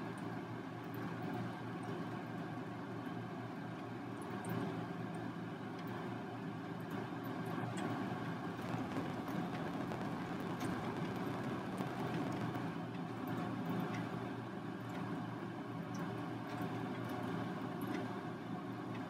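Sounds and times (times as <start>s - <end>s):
low background hum: 0.0s - 19.0s
faint ticks: 8.6s - 12.7s.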